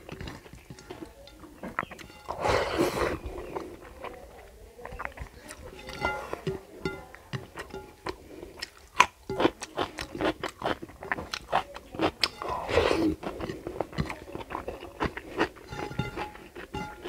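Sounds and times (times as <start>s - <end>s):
wet chewing and lip-smacking: 3.3s - 5.8s, 7.2s - 17.0s
fingers scraping food on plate: 12.3s - 17.0s.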